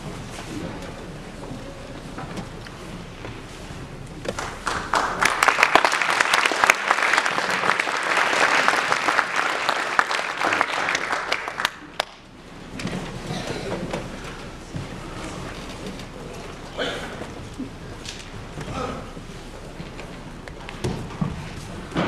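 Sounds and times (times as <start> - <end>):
audience applauding: 4.3 - 12.3.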